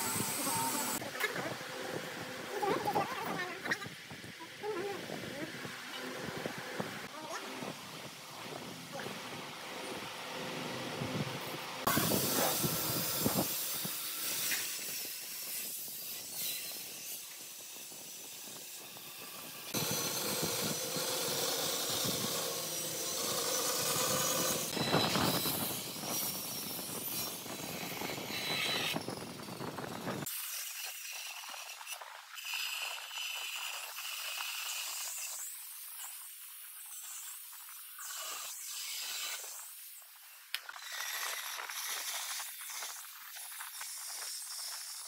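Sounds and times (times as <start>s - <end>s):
woodworking tool scraping wood: 19.7s - 35.5s.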